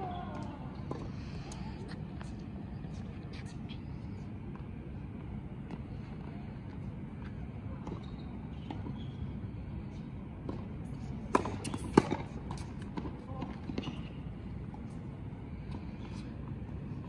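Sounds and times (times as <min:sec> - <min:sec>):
tennis balls bouncing on court: 0:00.0 - 0:02.4, 0:04.4 - 0:09.5, 0:10.4 - 0:15.0
tennis balls struck by rackets: 0:10.4 - 0:14.2.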